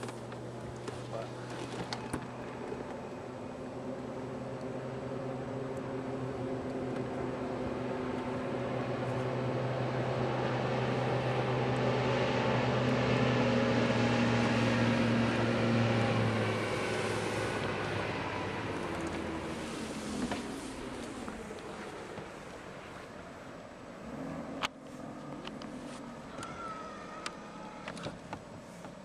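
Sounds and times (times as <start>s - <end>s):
outboard motor boat passing: 0.0s - 29.0s
hull hissing through water spray: 15.7s - 21.5s.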